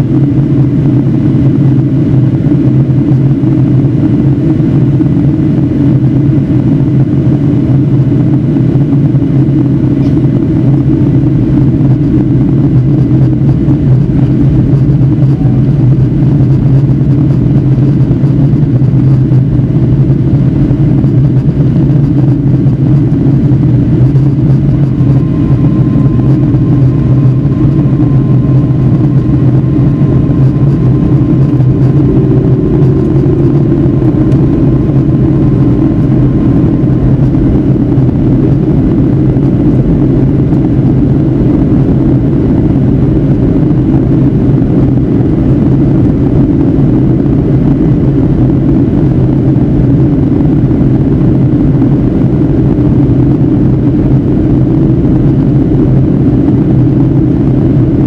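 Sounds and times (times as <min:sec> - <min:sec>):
aircraft cabin drone: 0:00.0 - 0:58.0.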